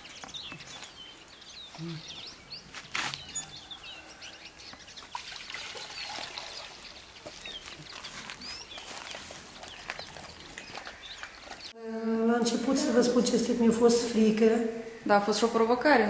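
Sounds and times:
small birds chirping: 0:00.0 - 0:11.8.

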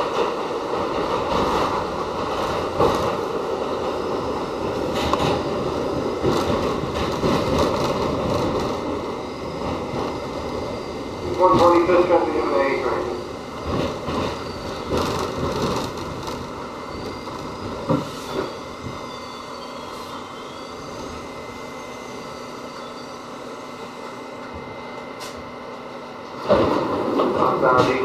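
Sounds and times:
steady train hum: 0:00.0 - 0:28.0
train wheels rumbling on rails: 0:00.0 - 0:28.0
faint wavering brake squeal: 0:14.3 - 0:14.9, 0:16.7 - 0:24.4.

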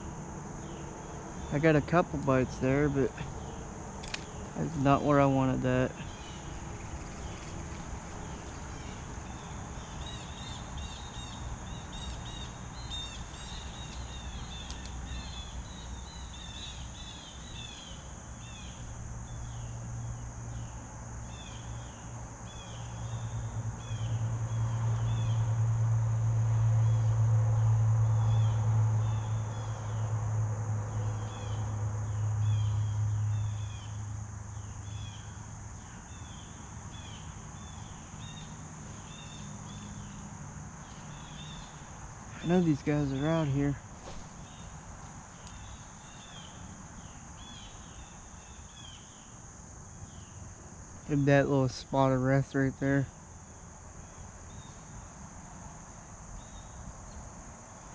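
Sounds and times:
low steady drone: 0:00.0 - 0:09.6
insect chirps: 0:00.0 - 0:57.9
insects buzzing: 0:00.0 - 0:57.9.

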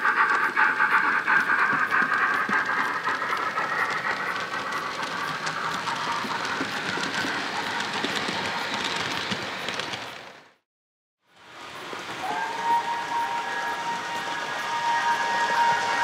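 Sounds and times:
model steam locomotive sounds: 0:00.0 - 0:10.6, 0:11.3 - 0:16.0
model wheels clicking over rail joints: 0:00.0 - 0:10.6.

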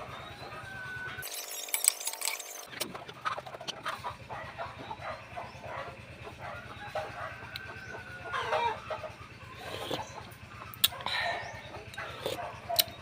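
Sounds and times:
chickens clucking: 0:00.0 - 0:01.2, 0:02.6 - 0:13.0.

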